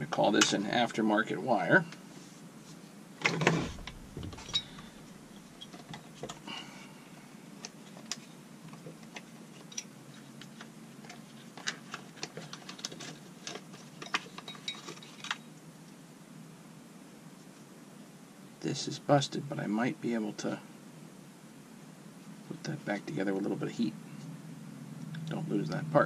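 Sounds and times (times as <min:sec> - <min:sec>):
rustle and knock: 0:02.1 - 0:06.4, 0:07.6 - 0:15.5.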